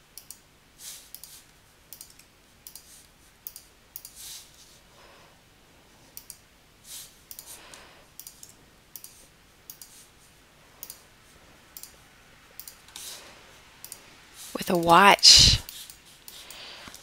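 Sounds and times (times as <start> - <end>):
computer mouse clicking: 0.1 - 0.4, 1.0 - 4.2, 6.1 - 6.4, 7.3 - 10.0, 10.8 - 11.0, 11.7 - 12.0, 12.6 - 13.1, 13.8 - 14.0, 15.7 - 17.0.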